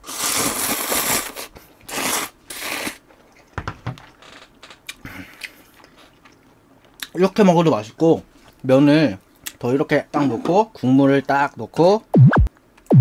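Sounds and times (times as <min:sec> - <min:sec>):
person slurping noodles: 0:00.0 - 0:03.0.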